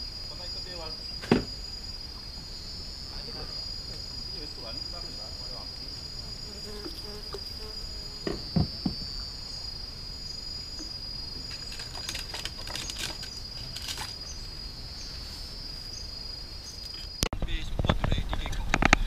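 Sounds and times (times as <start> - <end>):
insects trilling: 0.0 - 19.0
hard knocks: 8.2 - 9.2.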